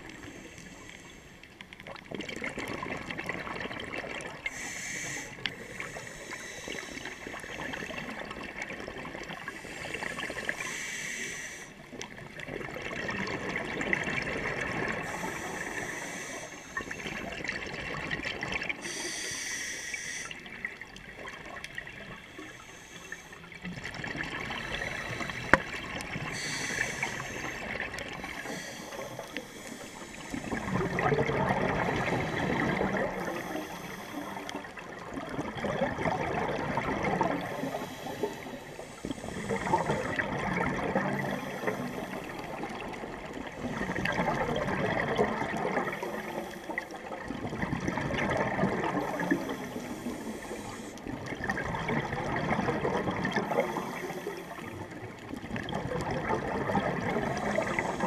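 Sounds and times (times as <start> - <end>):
regulator hissing inhale: 0.0 - 1.6, 4.4 - 8.1, 9.5 - 11.9, 15.0 - 17.3, 18.8 - 20.6, 22.1 - 23.5, 24.6 - 31.0, 32.0 - 34.8, 37.4 - 40.2, 41.2 - 42.6, 45.8 - 47.0, 49.0 - 51.1, 53.5 - 55.0, 57.4 - 58.0
exhaled bubbles gurgling: 0.0 - 58.0.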